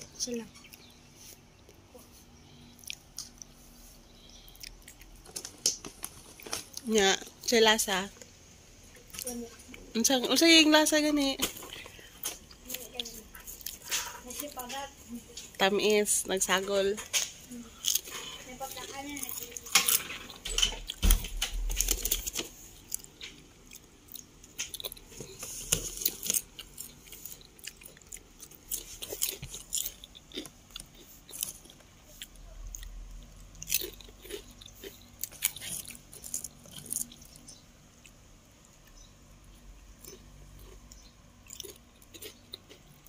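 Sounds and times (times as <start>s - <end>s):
chips crunching and chewing: 2.6s - 7.0s, 17.1s - 43.0s.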